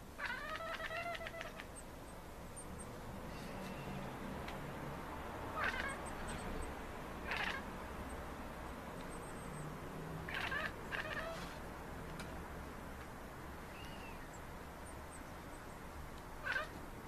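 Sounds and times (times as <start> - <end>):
cat meowing: 0.2 - 1.7, 5.6 - 6.1, 7.2 - 7.6, 10.3 - 11.6, 16.4 - 16.7
cat chattering: 0.2 - 1.8, 5.6 - 6.6, 7.2 - 7.7, 10.3 - 11.6, 16.4 - 16.7.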